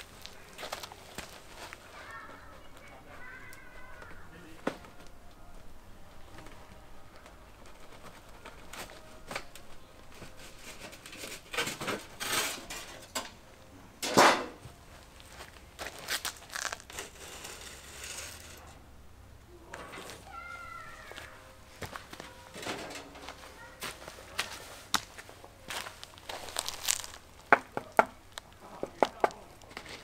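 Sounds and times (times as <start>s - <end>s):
sheet metal scraping and rattling: 7.6s - 13.3s, 14.0s - 14.6s, 16.9s - 18.8s, 22.4s - 23.3s.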